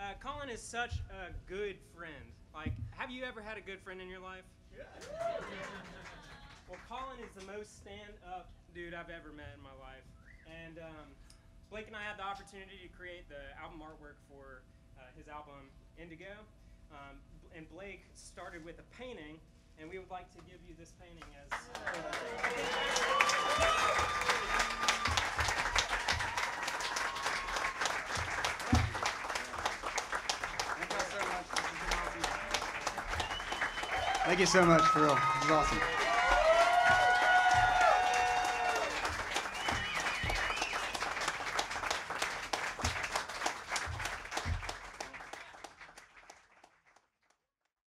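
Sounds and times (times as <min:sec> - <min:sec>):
audience applauding: 0:05.0 - 0:06.9, 0:21.5 - 0:47.0.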